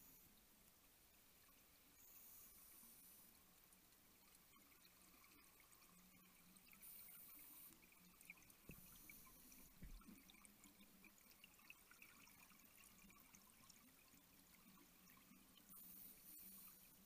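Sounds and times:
light underwater crackling: 0:00.0 - 0:17.0.

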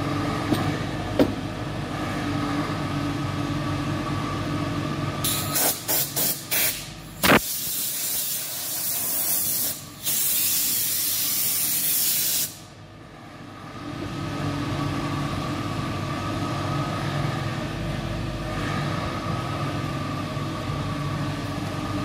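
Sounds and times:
workshop machine hum: 0:00.0 - 0:22.0
compressed air hissing: 0:05.2 - 0:12.7.

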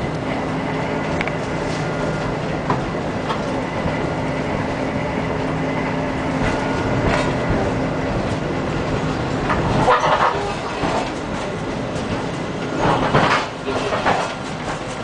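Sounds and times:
tram motors and wheels humming: 0:00.0 - 0:15.0
wheels clicking over rail joints: 0:06.2 - 0:15.0.

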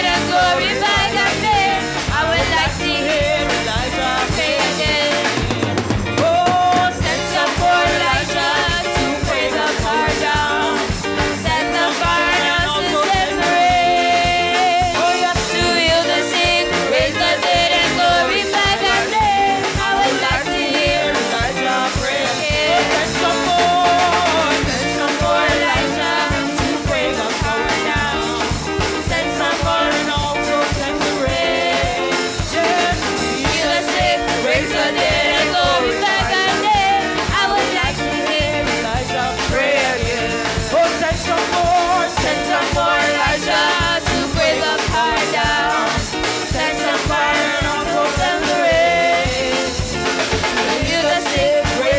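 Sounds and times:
drum kit and band playing: 0:00.0 - 0:51.9
women singing together: 0:00.0 - 0:51.9.

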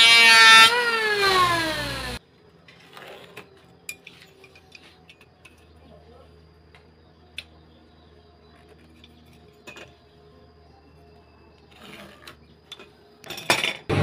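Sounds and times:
metal tools clattering on bench: 0:03.2 - 0:05.7, 0:08.7 - 0:10.1, 0:12.0 - 0:13.9.

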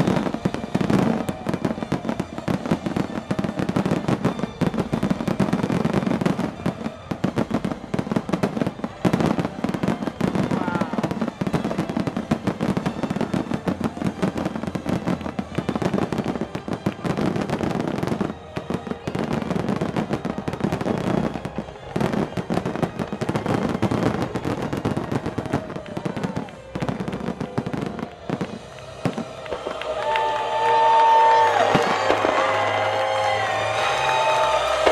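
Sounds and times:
fireworks bursting: 0:00.0 - 0:34.9.

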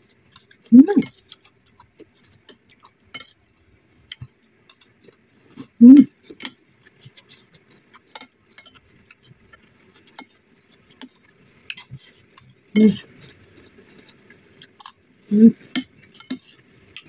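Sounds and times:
mouth noise: 0:00.7 - 0:01.1, 0:05.8 - 0:06.1, 0:15.3 - 0:15.6.

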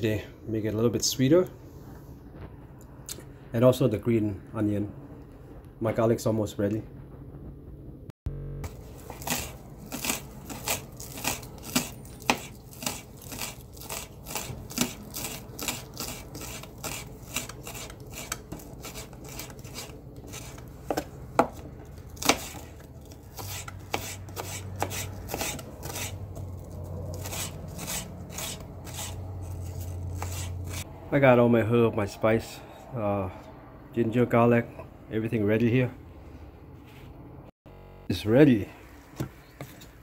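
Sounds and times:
knife chopping on cutting board: 0:09.0 - 0:26.2, 0:27.2 - 0:30.8.

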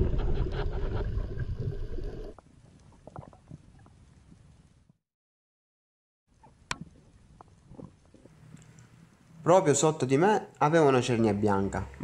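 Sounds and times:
small underwater clicks: 0:06.4 - 0:09.4.

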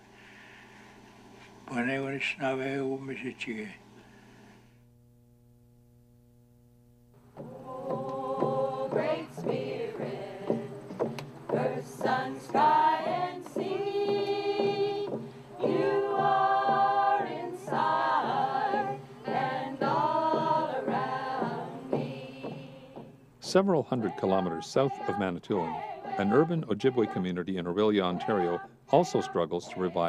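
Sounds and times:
frame drums beaten: 0:07.2 - 0:30.0
women and children singing: 0:07.4 - 0:10.9, 0:11.5 - 0:23.1, 0:23.9 - 0:27.4, 0:28.0 - 0:30.0.

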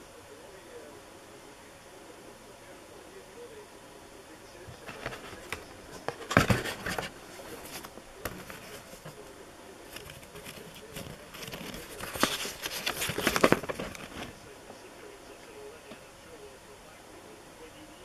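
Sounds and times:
cardboard box and paper rustling: 0:04.8 - 0:09.2, 0:09.9 - 0:14.4.

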